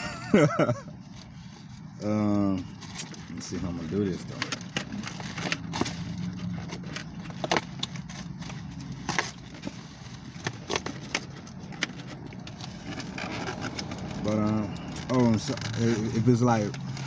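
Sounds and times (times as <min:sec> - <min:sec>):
low hum inside a car: 0:00.0 - 0:17.0
food packaging rustling: 0:00.9 - 0:17.0.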